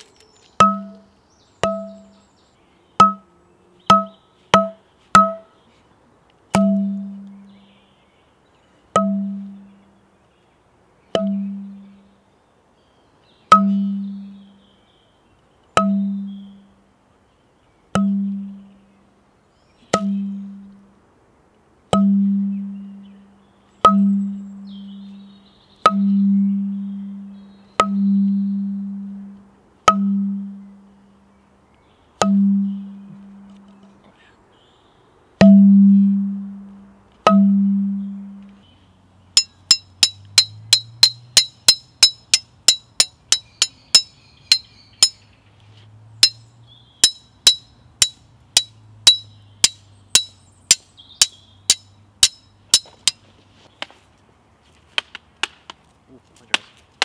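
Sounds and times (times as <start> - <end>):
metal struck ringing: 35.4 - 36.7, 37.3 - 38.4, 39.4 - 45.2, 46.2 - 53.2.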